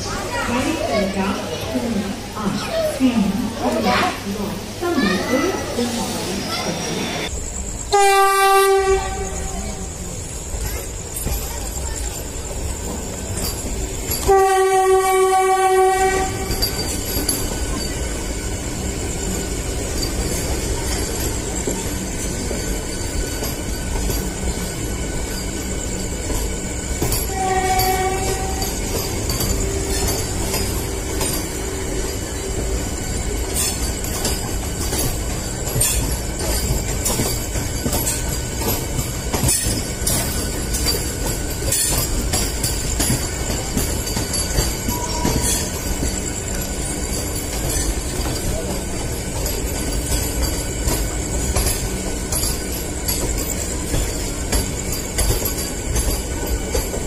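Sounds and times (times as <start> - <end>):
train rumbling on rails: 0.0 - 57.0
train horn blowing: 7.9 - 9.7, 14.2 - 16.6, 27.3 - 28.8.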